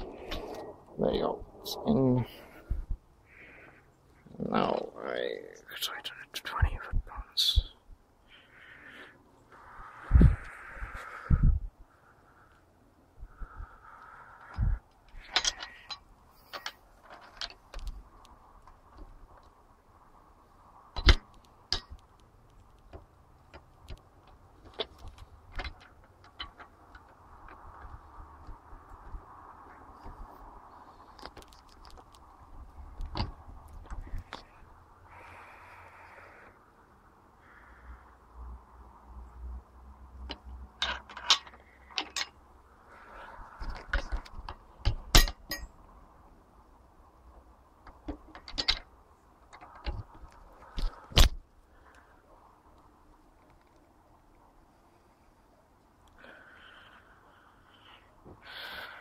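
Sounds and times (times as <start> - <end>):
metal tools clinking on engine: 40.8 - 42.4, 44.8 - 45.8.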